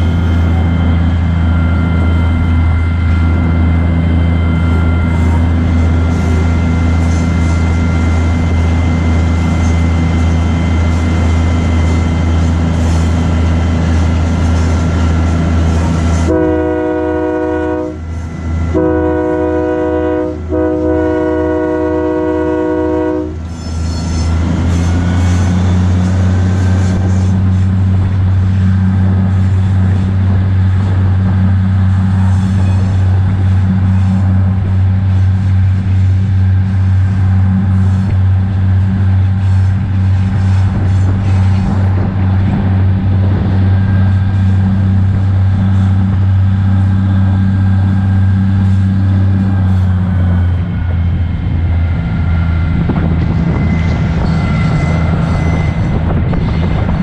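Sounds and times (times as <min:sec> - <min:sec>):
locomotive diesel engine running: 0:00.0 - 0:57.0
thin steady whine: 0:00.0 - 0:57.0
locomotive air horn blasts: 0:15.9 - 0:27.6.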